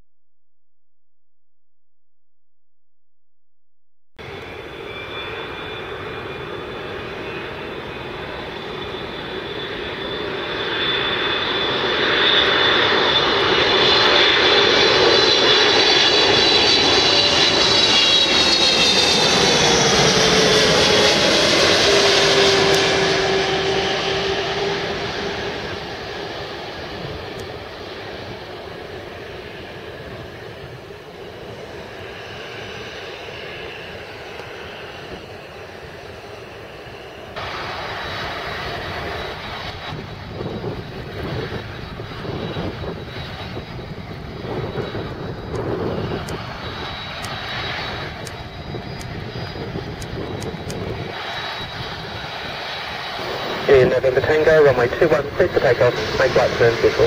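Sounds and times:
high whining engine tones: 4.2 - 30.7, 31.4 - 57.0
jet airliner roar: 4.2 - 57.0.

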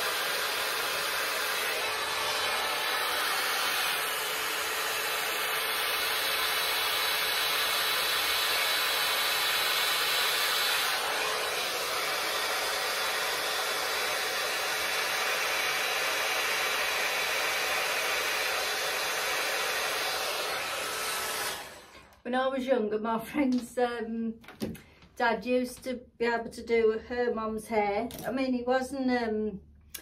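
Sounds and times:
hot-air styling brush blowing: 0.0 - 22.3.

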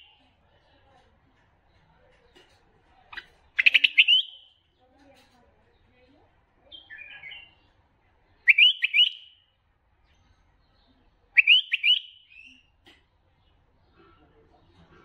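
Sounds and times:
bulbul whistled song: 3.6 - 4.6, 8.5 - 9.5, 11.4 - 12.7.

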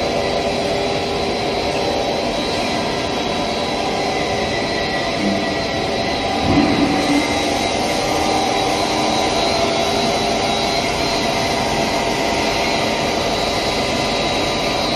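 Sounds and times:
machine motors and fans droning: 0.0 - 14.9.

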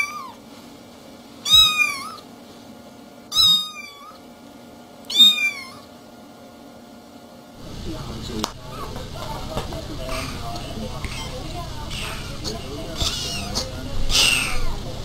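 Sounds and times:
cat meowing: 0.0 - 0.4, 1.4 - 2.3, 3.3 - 4.2, 5.1 - 5.9, 11.1 - 12.3, 13.0 - 14.8.

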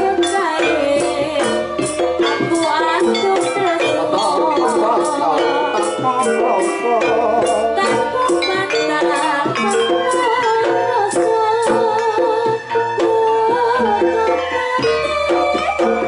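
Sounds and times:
rattling percussion and drums: 0.0 - 16.0
wavering melody: 0.0 - 16.0.

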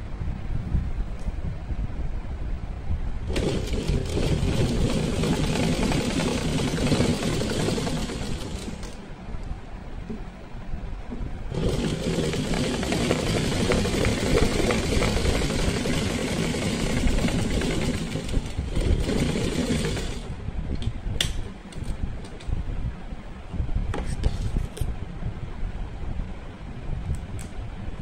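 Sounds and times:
sewing machine stitching: 3.3 - 9.0, 11.5 - 20.3.

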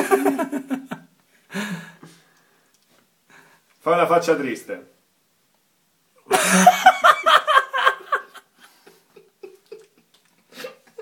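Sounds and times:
man laughing: 0.0 - 1.0, 6.3 - 10.1.

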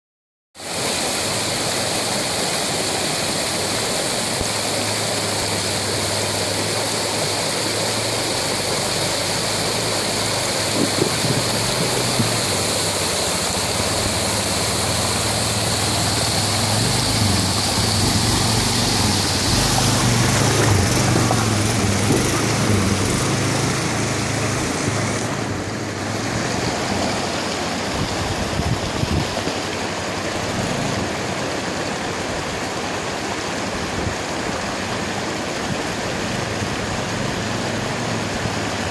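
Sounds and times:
rushing stream: 0.6 - 38.9
quad bike engine running: 3.7 - 27.2, 30.3 - 31.6, 34.8 - 38.9.

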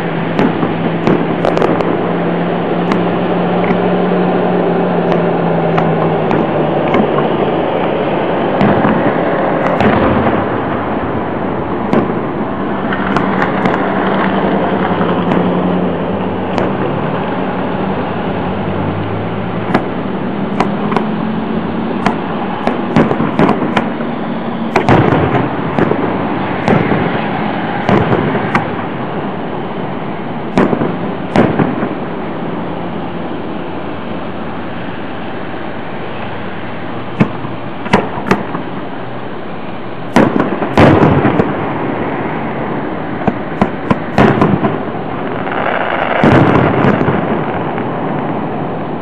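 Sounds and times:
steady background noise: 0.0 - 49.0
firework shells bursting: 0.2 - 4.4, 5.0 - 17.5, 19.7 - 21.2, 21.9 - 29.0, 30.5 - 32.0, 37.2 - 38.9, 40.1 - 42.0, 43.2 - 48.3.

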